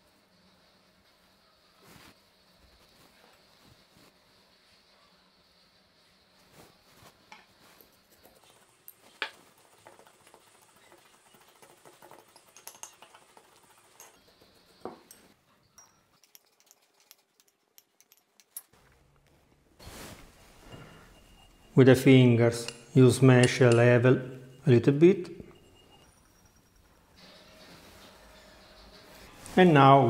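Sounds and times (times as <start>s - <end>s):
spoon scraping ceramic bowl: 8.0s - 15.4s, 16.1s - 18.2s.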